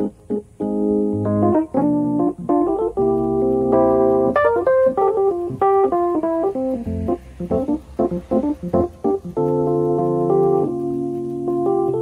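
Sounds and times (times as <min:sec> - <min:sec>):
keyboard chords and melody: 0:00.0 - 0:12.0.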